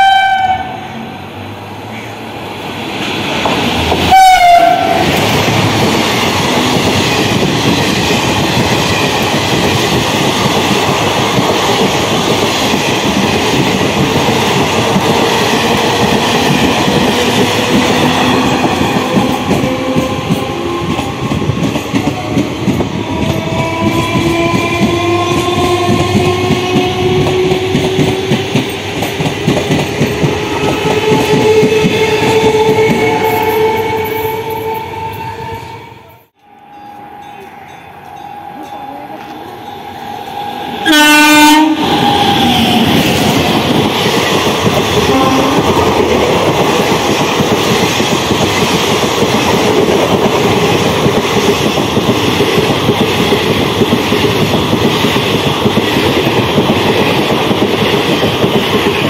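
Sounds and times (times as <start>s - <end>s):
locomotive horn blast: 0.0s - 1.0s, 4.0s - 5.1s, 40.8s - 42.2s, 45.1s - 45.7s
train wheels clacking over rail joints: 5.0s - 33.6s.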